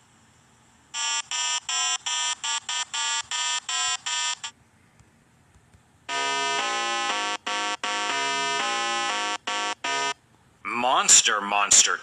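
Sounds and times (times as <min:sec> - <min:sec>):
electronic buzzer beeps: 0:01.0 - 0:04.5, 0:06.1 - 0:10.2.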